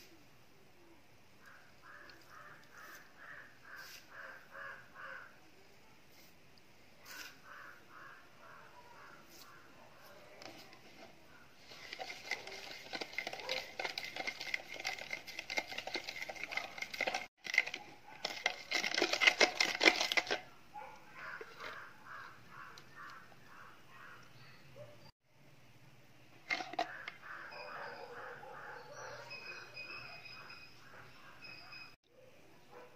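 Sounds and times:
spoon scraping in plastic jug: 10.4s - 20.5s, 21.2s - 22.2s, 26.4s - 27.4s.

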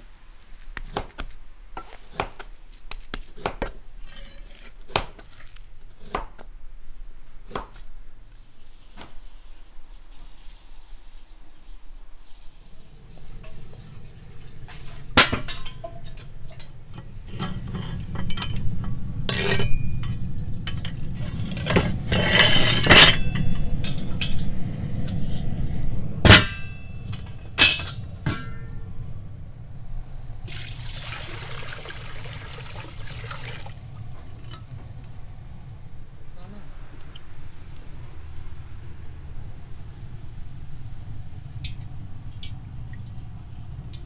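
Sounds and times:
cast iron lids clanking: 13.4s - 24.6s, 26.2s - 28.8s
water poured into pot: 30.4s - 34.6s.

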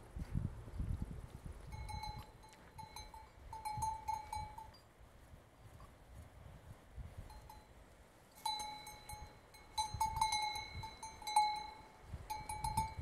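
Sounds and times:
cowbell clanking: 1.7s - 4.9s, 7.3s - 7.7s, 8.3s - 13.0s.

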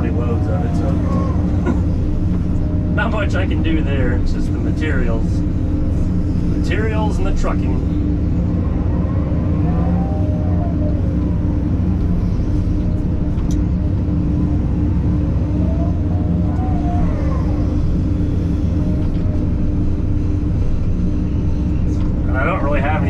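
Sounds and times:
excavator hydraulic whine: 0.0s - 23.0s.

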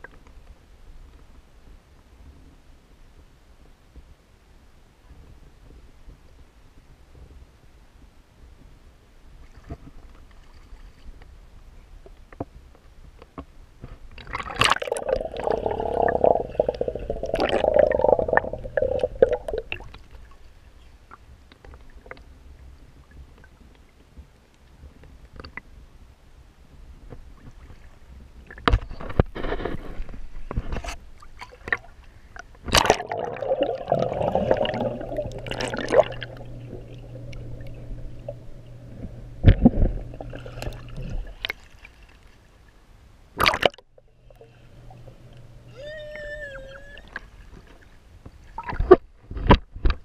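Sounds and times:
muffled underwater sloshing: 13.8s - 24.1s, 27.1s - 50.0s
knocks and splashes: 32.6s - 42.3s, 43.4s - 43.9s, 47.5s - 50.0s.

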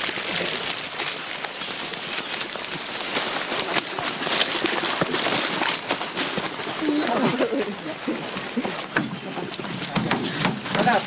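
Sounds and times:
twigs snapping: 0.0s - 7.6s
leaves and twigs rustling: 0.0s - 11.0s
plastic tarp crackling: 0.0s - 11.0s.

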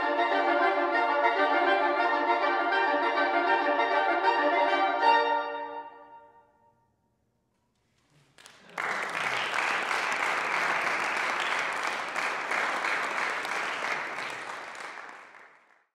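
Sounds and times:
audience applauding: 8.0s - 15.9s.

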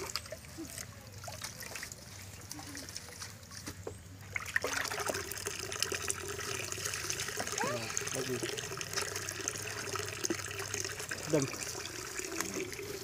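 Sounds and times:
water trickling into a plastic tub: 0.0s - 13.0s
dipper splashing in water: 4.3s - 13.0s.

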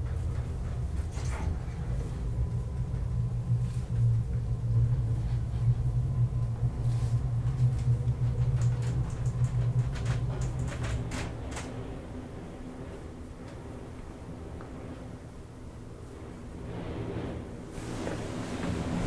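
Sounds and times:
elevator low hum: 0.0s - 19.0s
elevator clicks and knocks: 8.0s - 11.8s.

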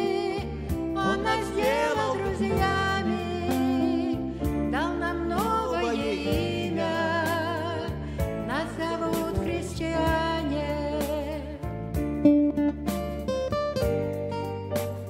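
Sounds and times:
woman singing with vibrato: 0.0s - 11.6s
electronic keyboard chords: 0.0s - 15.0s.

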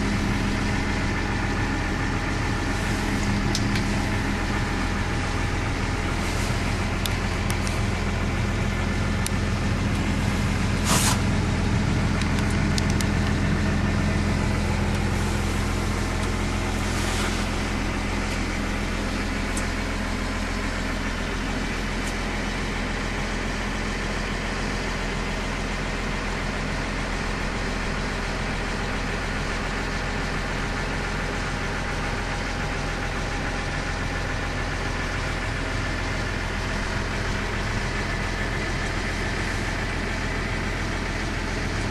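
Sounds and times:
diesel tractor engine idling: 0.0s - 41.9s.

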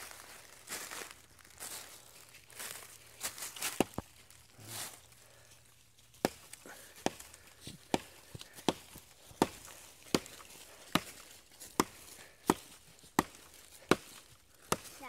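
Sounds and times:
knife chopping branch: 6.2s - 15.0s.

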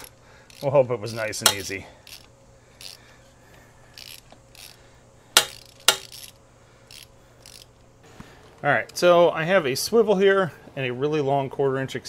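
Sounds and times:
hand ratchet clicking: 0.0s - 3.0s, 3.9s - 4.8s, 5.4s - 7.7s.

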